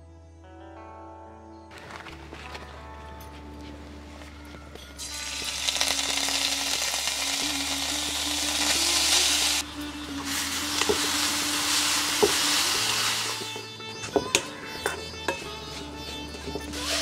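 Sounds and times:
food sizzling in hot ghee: 0:05.0 - 0:13.6, 0:16.7 - 0:17.0.

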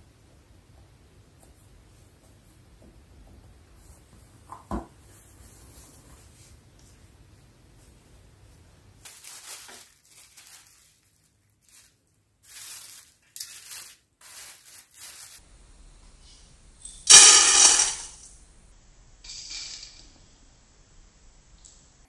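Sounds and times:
plastic film crinkling: 0:09.0 - 0:15.4
coffee granules pouring into metal bowl: 0:17.1 - 0:18.2.

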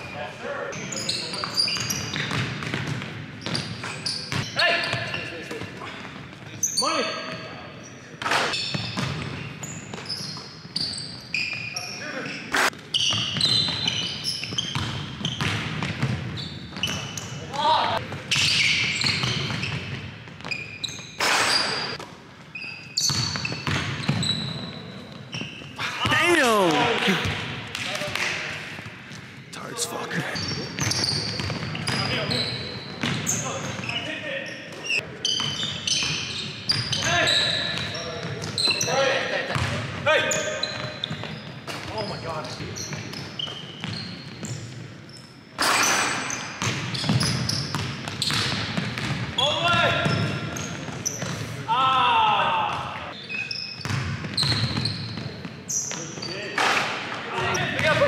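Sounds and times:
sneaker squeaks: 0:00.0 - 0:26.4, 0:30.2 - 0:51.6, 0:53.1 - 0:58.0.

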